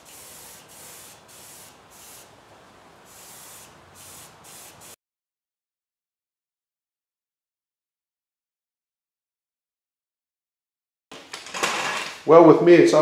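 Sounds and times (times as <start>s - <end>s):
paint spray gun hissing: 0.0s - 2.3s, 3.1s - 5.0s.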